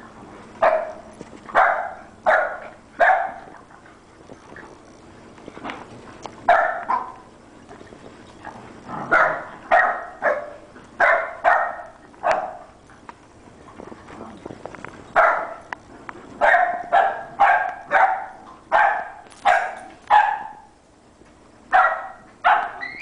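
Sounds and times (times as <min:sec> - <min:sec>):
puppies barking: 0:00.6 - 0:03.6, 0:06.5 - 0:07.2, 0:09.1 - 0:12.8, 0:16.4 - 0:20.7, 0:21.7 - 0:23.0.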